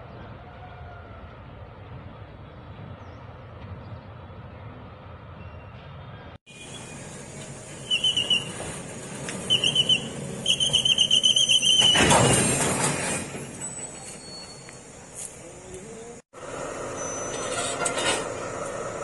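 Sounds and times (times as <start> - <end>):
freight wagons squealing: 6.5 - 15.1, 16.9 - 18.3.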